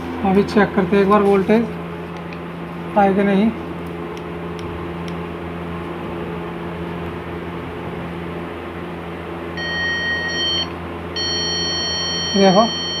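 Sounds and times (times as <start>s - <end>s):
low electrical hum: 0.0s - 13.0s
high electronic beep: 9.6s - 13.0s.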